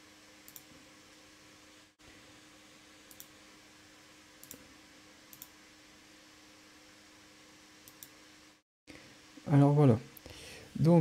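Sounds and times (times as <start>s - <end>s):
computer mouse clicks: 0.5s - 0.7s, 3.1s - 3.3s, 4.4s - 4.6s, 5.3s - 5.5s, 7.8s - 8.2s.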